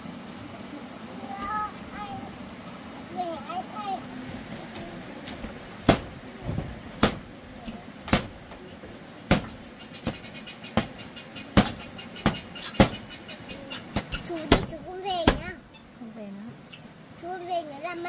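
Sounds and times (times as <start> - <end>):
sharp knocks on solid surface: 5.8 - 7.3, 8.1 - 8.4, 9.3 - 10.2, 11.6 - 13.0, 14.0 - 15.5.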